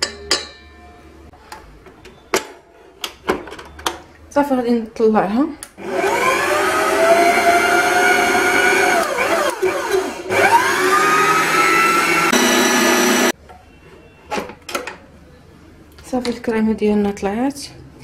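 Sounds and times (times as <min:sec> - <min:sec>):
stand mixer motor whining: 0:05.8 - 0:13.3.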